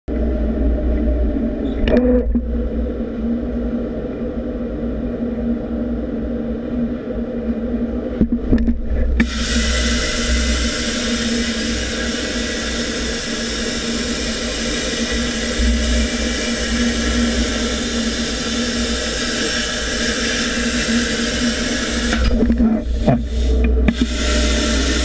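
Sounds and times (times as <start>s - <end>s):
constant hum: 0.0s - 25.0s
plasma arc hissing: 9.2s - 25.0s.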